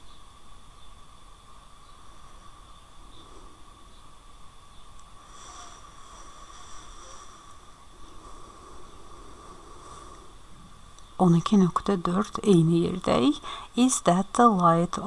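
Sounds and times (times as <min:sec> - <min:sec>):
faint background hiss: 0:00.0 - 0:15.0
thin high whines: 0:01.8 - 0:13.4.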